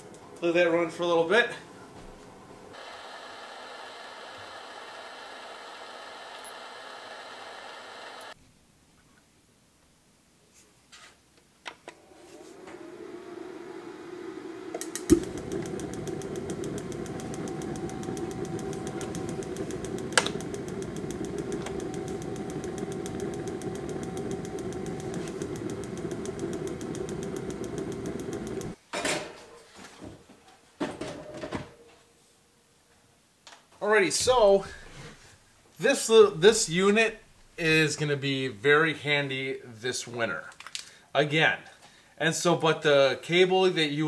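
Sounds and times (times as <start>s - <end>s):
heater fan and flame rushing: 1.9s - 8.4s, 11.9s - 28.8s
burner ignition click: 2.7s - 8.4s, 11.9s - 28.8s.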